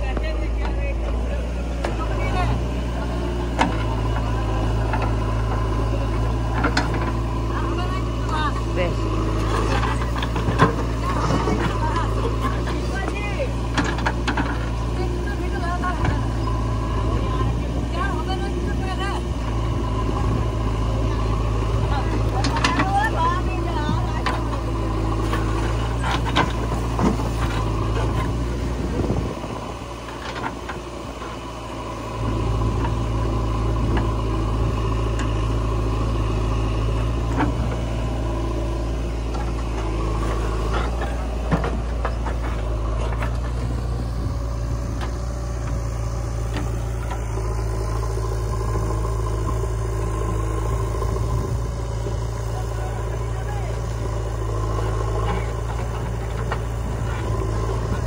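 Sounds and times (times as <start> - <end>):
diesel engines running: 0.0 - 58.0.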